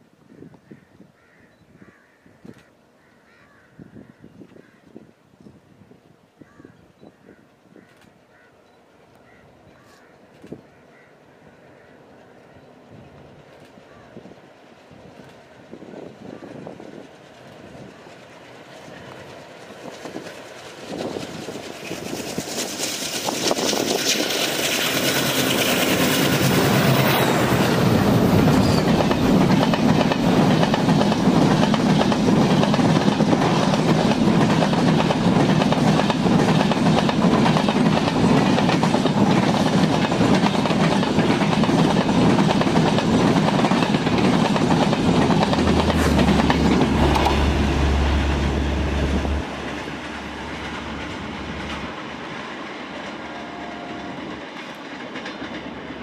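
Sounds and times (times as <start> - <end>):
diesel locomotive passing: 10.2 - 56.0
train wheels clattering on rails: 15.0 - 56.0.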